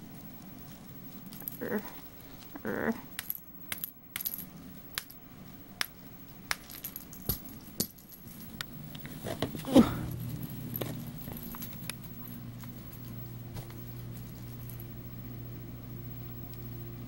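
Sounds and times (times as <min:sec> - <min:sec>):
small bell jingling: 0:06.6 - 0:08.6.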